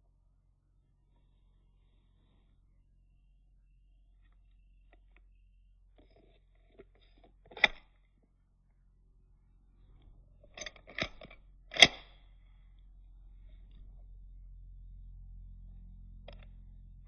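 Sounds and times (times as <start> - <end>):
handgun clicks: 10.6 - 12.1.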